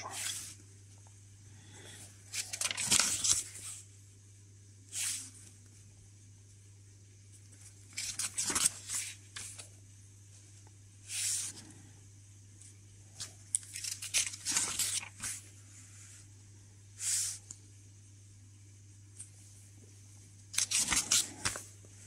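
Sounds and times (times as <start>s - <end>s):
paper pages rustling: 0.0s - 0.6s, 2.3s - 3.8s, 7.5s - 9.7s, 13.2s - 15.5s, 20.6s - 21.8s
low steady hum: 0.0s - 22.0s.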